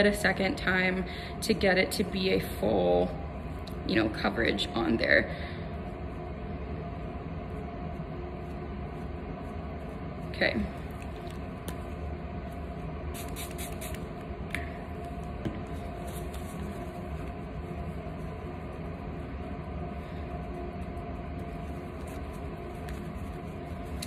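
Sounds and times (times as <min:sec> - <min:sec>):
steady machine hum: 0:00.0 - 0:24.0
paper towel crackling: 0:15.2 - 0:24.0.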